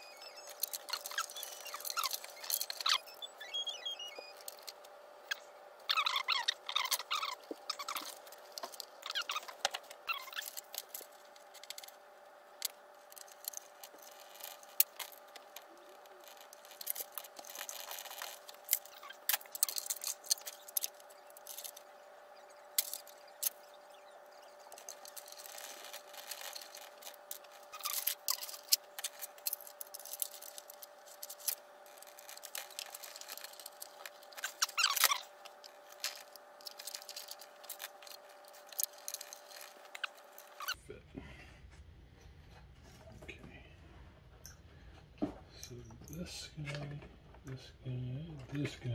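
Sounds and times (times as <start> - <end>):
wires rustling and clicking: 0.0 - 40.8
faint steady hum: 0.0 - 48.9.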